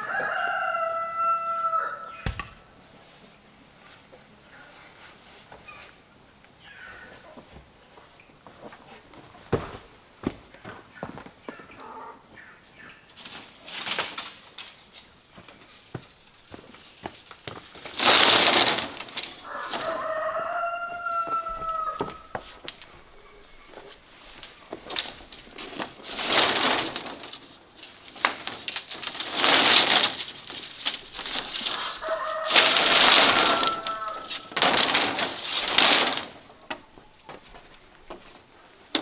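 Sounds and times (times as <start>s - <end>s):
rooster crowing: 0.0s - 2.2s, 19.4s - 22.4s, 31.7s - 35.2s.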